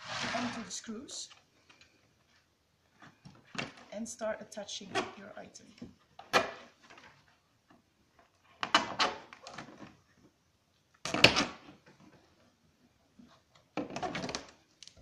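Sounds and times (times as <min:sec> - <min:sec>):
plastic sheet crackling and scraping: 0:00.0 - 0:01.4.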